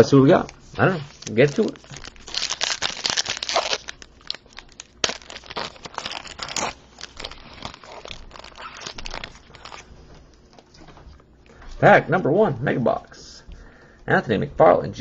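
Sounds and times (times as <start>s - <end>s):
wrapper tearing and crinkling: 0.0s - 9.9s.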